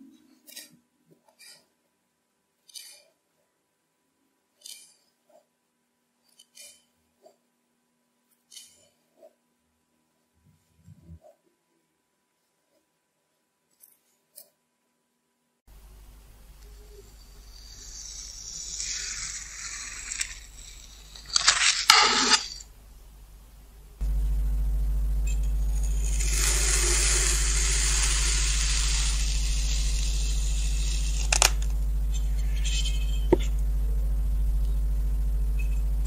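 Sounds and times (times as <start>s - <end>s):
low electrical hum: 14.7s - 36.0s
crinkle cutter pressing through sand: 16.4s - 22.8s, 24.0s - 33.6s
short clicks: 26.2s - 33.6s.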